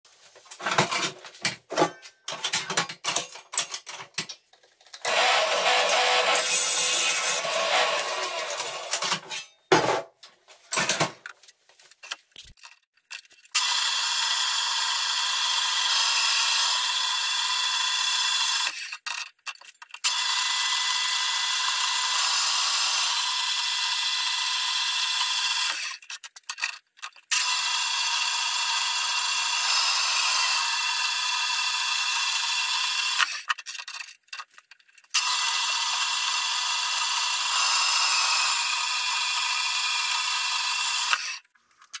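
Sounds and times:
bandsaw cutting steel: 5.0s - 9.6s, 13.5s - 19.0s, 20.0s - 26.0s, 27.3s - 34.1s, 35.1s - 41.5s.

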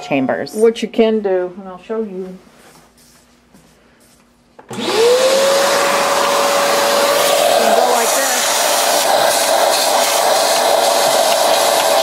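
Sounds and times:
shop vacuum running: 4.6s - 12.0s.

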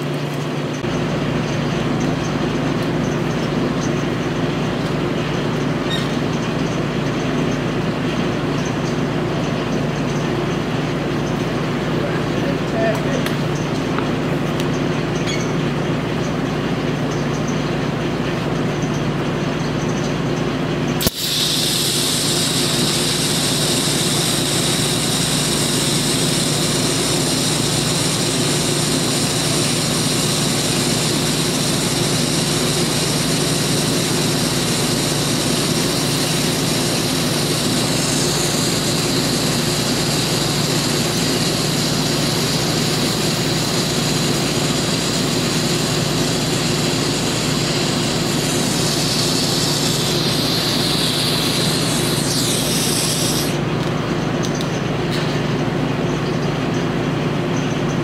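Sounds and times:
low machine hum: 0.0s - 58.0s
welding arc striking click: 21.0s - 53.6s
welding arc hissing: 21.0s - 53.8s.

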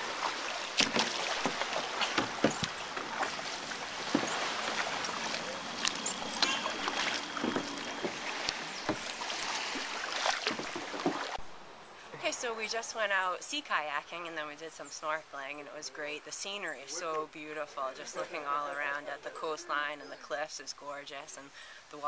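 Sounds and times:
kayak knocks: 0.0s - 11.4s
water splashing and trickling: 0.0s - 11.5s.

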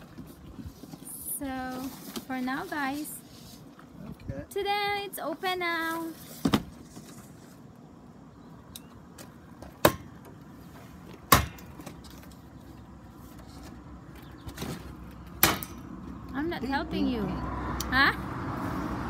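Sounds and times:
sharp knocks on steel frames: 9.7s - 10.3s, 11.3s - 11.9s, 15.4s - 15.9s.

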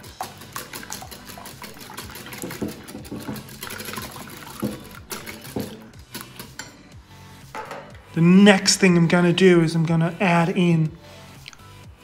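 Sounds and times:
liquid sloshing: 0.2s - 6.4s.

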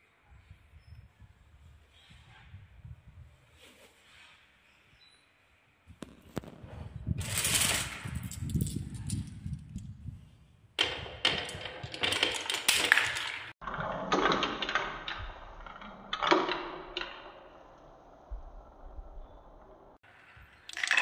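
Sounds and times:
marbles clattering on wooden track: 7.2s - 9.9s, 10.8s - 17.6s.

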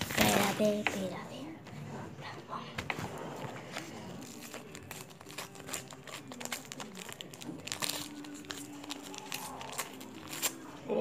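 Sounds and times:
wrapper tearing and crinkling: 4.2s - 10.8s.

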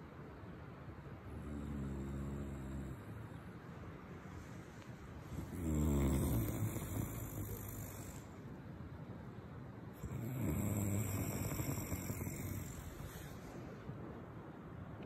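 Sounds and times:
man snoring: 1.3s - 3.1s, 5.3s - 8.4s, 10.0s - 13.5s.

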